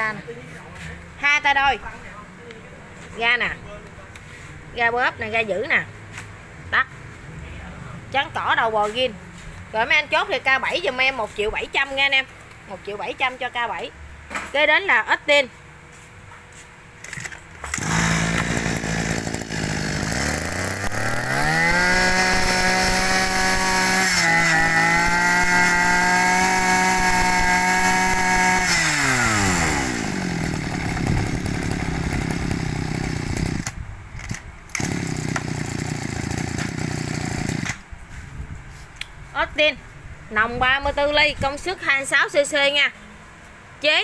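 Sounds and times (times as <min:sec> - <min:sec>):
brush cutter engine revving: 0:17.0 - 0:37.8.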